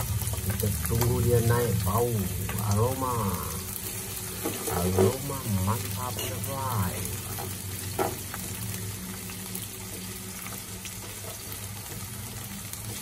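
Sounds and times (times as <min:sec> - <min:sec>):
vegetables sizzling in hot oil: 0:00.0 - 0:13.0
spatula stirring in a pan: 0:02.3 - 0:08.6.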